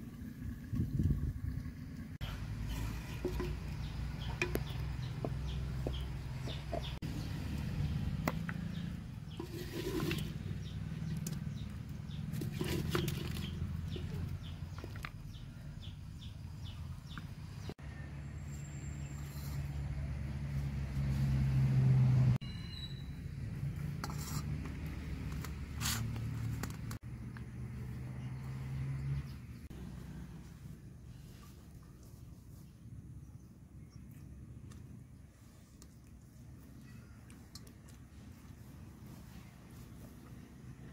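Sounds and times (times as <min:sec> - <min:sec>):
wooden spoon scraping clay pot: 0:02.2 - 0:07.0, 0:08.2 - 0:15.1, 0:19.0 - 0:19.9, 0:23.7 - 0:27.0
hand mixing food on steel plate: 0:08.8 - 0:15.2
faint bird chirps: 0:22.4 - 0:23.2, 0:36.7 - 0:37.3.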